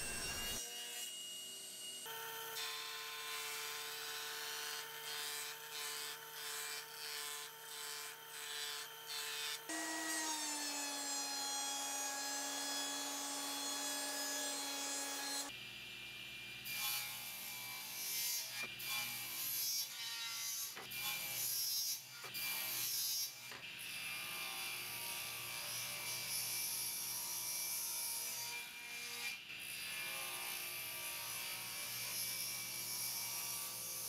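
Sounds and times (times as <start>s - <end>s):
table saw cutting wood: 0.0s - 15.5s.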